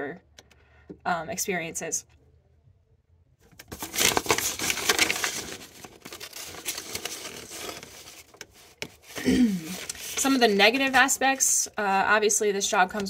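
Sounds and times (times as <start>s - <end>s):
rustling and crinkling handling noise: 3.4s - 11.5s.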